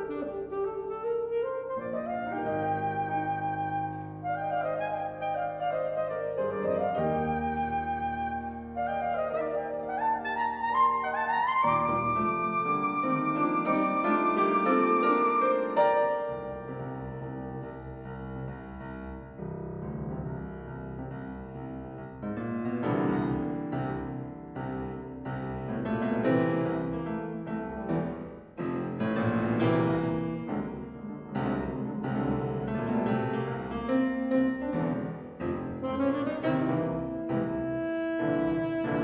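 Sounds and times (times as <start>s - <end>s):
saxophone: 0.0s - 17.2s, 35.3s - 39.0s
piano chords: 0.0s - 39.0s.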